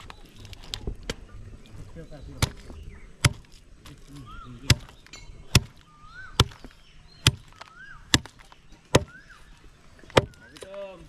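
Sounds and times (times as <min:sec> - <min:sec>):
heavy blade chopping: 0:02.4 - 0:04.0, 0:04.6 - 0:09.2, 0:10.1 - 0:10.5.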